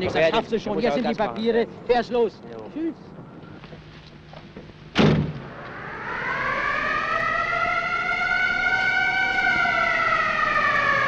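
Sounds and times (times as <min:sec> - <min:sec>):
loud bang: 0:04.9 - 0:06.4
siren wailing: 0:05.4 - 0:11.0.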